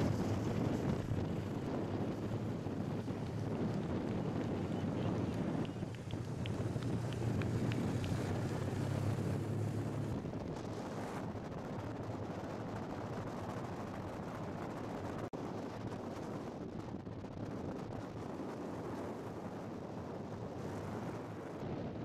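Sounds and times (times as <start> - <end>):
low engine drone: 0.0 - 13.9
wind rushing over microphone: 0.0 - 22.0.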